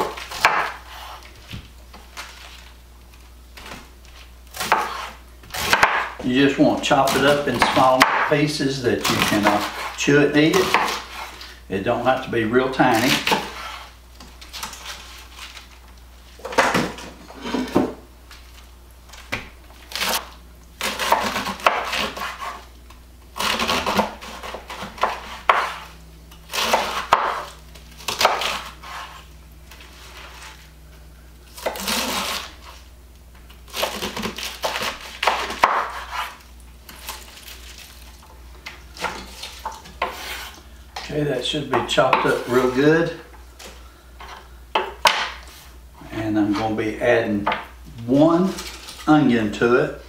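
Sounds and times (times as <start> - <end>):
knife chopping cabbage on wood: 0.0 - 1.2, 4.5 - 8.4, 9.0 - 11.3, 13.0 - 13.9, 19.3 - 22.6, 23.4 - 29.2, 31.6 - 32.8, 33.7 - 37.5, 38.6 - 40.5.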